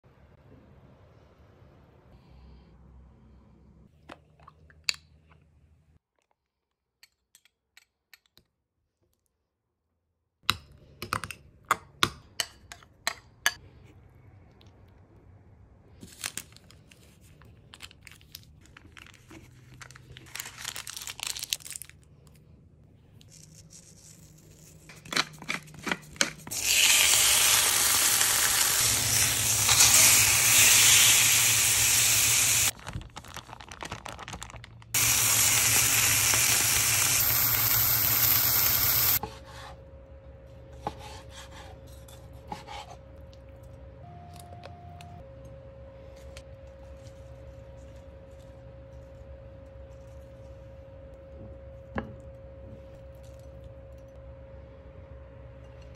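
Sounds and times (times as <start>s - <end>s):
steak sizzling in skillet: 26.5s - 32.7s, 35.0s - 39.2s.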